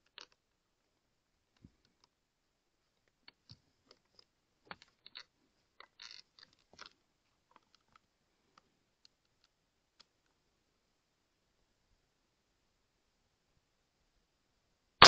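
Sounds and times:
air rifle handling clicks and rustle: 3.2s - 8.1s.

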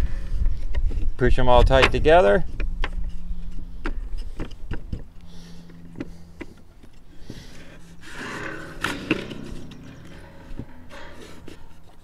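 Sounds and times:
wood scraping rub: 2.4s - 12.0s.

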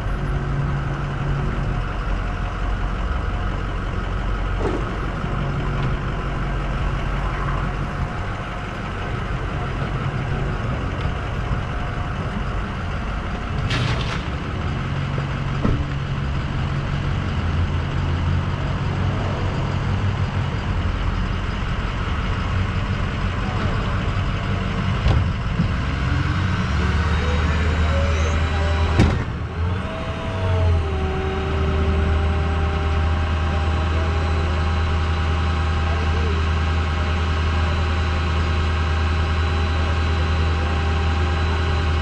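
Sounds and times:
truck engine running: 0.0s - 42.0s.

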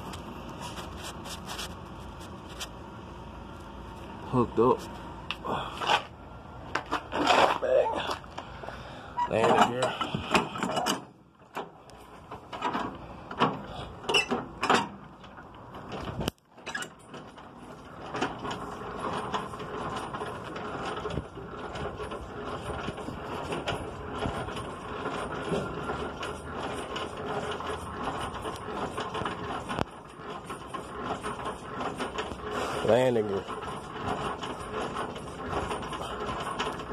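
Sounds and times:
gearbox clicking while hand-cranked: 9.2s - 36.9s
knocks and clanks: 9.2s - 36.9s.

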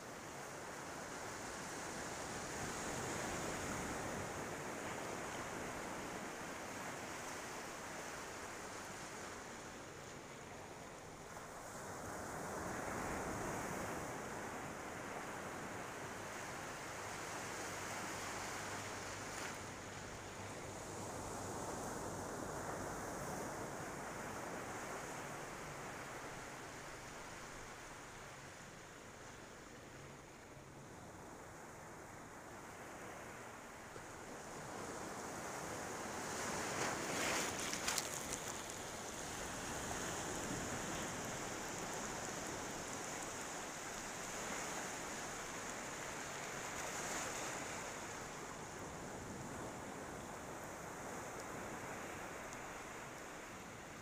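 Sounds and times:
ocean surf washing onto beach: 0.2s - 54.0s.

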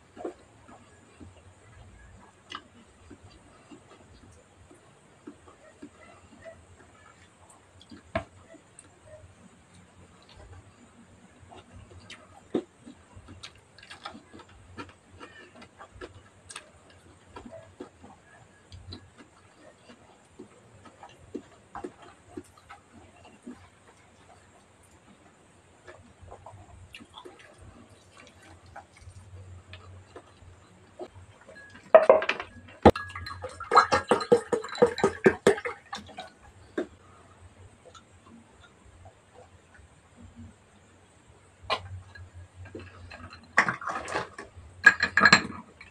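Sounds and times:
chewing with mouth clicks: 2.0s - 31.9s.

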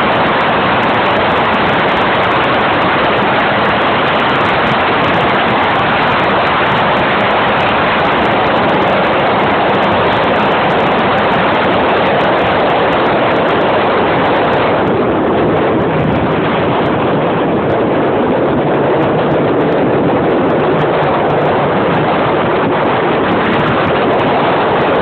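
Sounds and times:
motorcycle running: 0.0s - 25.0s
road noise: 0.0s - 25.0s
wind rushing on microphone: 0.0s - 25.0s.

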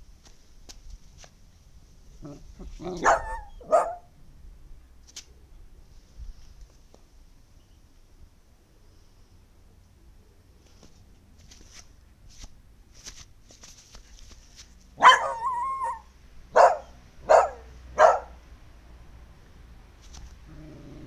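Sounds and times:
dog yowling: 2.7s - 4.1s, 15.0s - 18.3s
dog barking: 2.8s - 4.1s, 15.0s - 18.4s
faint scuffling: 10.6s - 15.4s.

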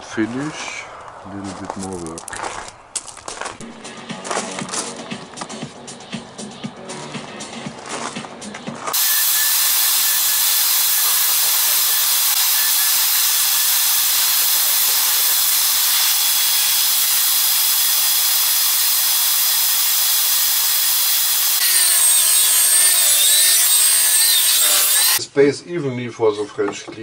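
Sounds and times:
paint sprayer hissing: 8.9s - 25.2s.

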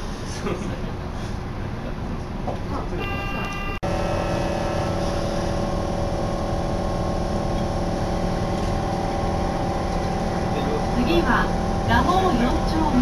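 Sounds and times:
subway train humming: 0.0s - 13.0s
steady motor tones: 3.1s - 13.0s.

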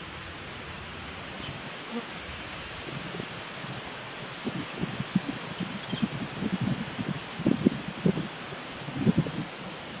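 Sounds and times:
steady hiss: 0.0s - 10.0s.

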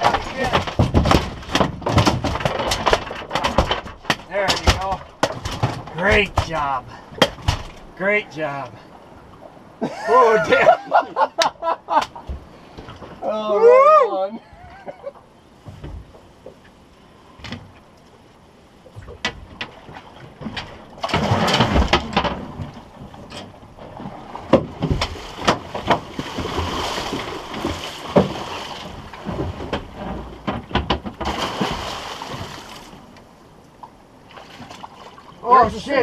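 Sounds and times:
gear knocking against boat hull: 0.0s - 6.6s, 24.5s - 31.4s
water splashing and rushing: 0.0s - 13.4s, 18.4s - 36.0s.

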